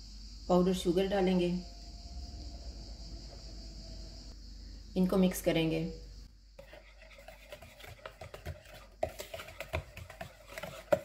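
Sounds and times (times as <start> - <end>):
whisk clicking against bowl: 6.6 - 11.0.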